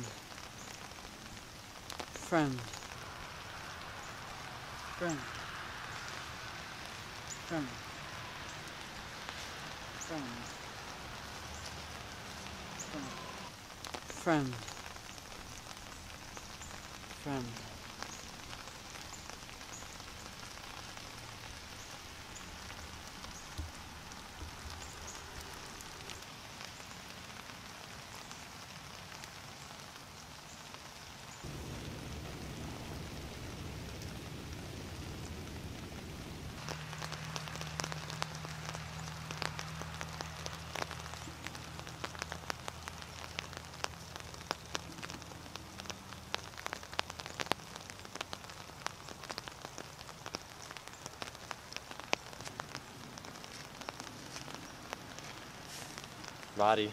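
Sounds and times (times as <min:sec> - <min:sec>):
dense irregular crackling ticks: 0:00.0 - 0:04.4, 0:06.8 - 0:30.6, 0:36.5 - 0:56.9
steady hiss: 0:00.0 - 0:56.9
low steady hum: 0:31.5 - 0:36.9.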